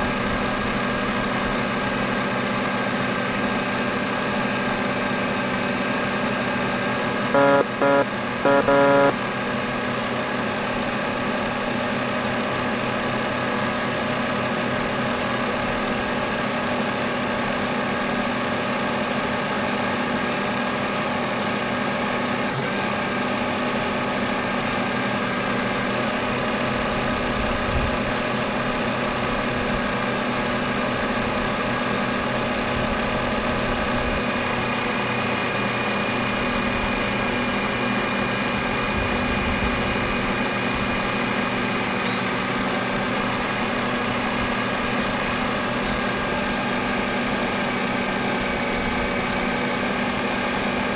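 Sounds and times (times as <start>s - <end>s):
mechanical hum and whine: 0.0s - 50.9s
short loud beeps: 7.4s - 9.2s.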